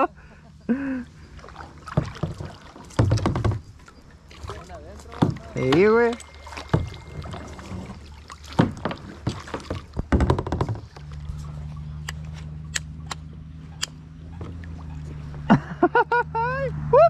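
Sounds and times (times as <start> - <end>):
knocks and clicks on kayak: 1.8 - 4.5, 5.1 - 11.2.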